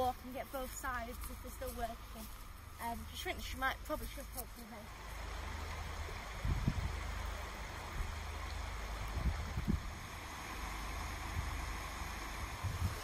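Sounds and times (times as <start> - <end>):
river water rushing: 4.8 - 13.0.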